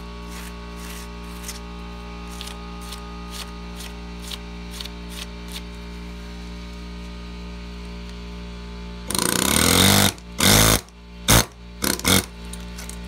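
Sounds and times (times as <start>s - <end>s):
steady low hum: 0.0s - 13.0s
gloved hand scraping dirt: 0.2s - 5.7s.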